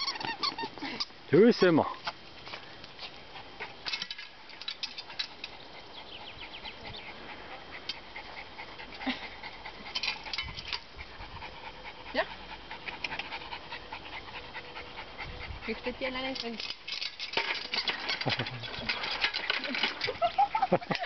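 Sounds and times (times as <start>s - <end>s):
dog panting: 5.0s - 16.4s.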